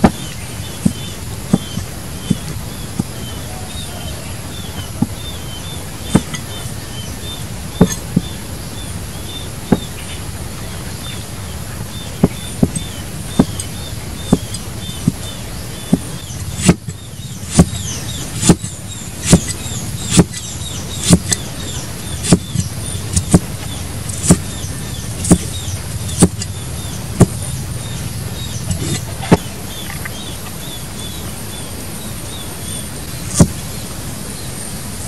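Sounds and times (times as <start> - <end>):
cleaver chopping onto wooden board: 6.1 - 6.4, 7.8 - 8.3, 14.3 - 15.3, 15.9 - 21.5, 22.1 - 24.6, 25.2 - 26.5, 27.2 - 27.4, 33.3 - 33.6.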